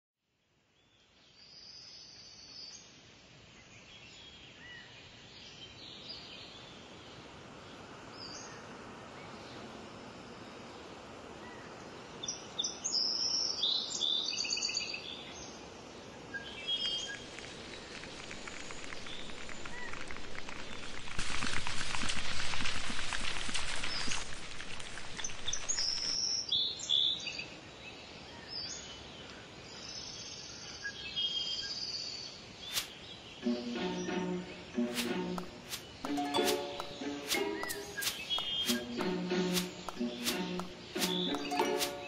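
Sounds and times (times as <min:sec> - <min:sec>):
steady background hiss: 0:01.2 - 0:19.7
birds chirping and singing: 0:35.7 - 0:42.0.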